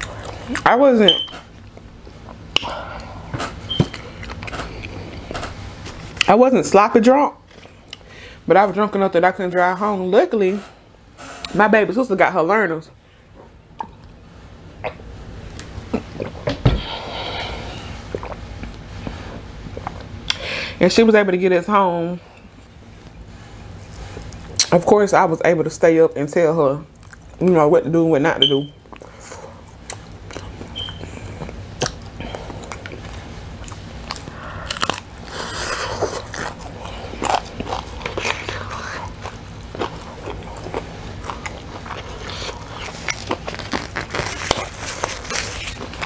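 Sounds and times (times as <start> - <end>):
person gulping water: 18.1 - 18.7
chewing with crisp clicks: 26.9 - 27.4, 29.8 - 35.1, 36.0 - 43.7
crispy breading crunching: 32.7 - 46.0.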